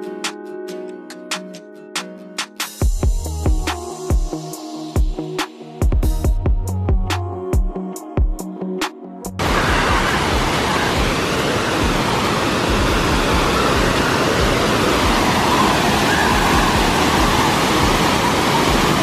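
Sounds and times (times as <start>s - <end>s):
waterfall roaring: 9.4s - 19.0s.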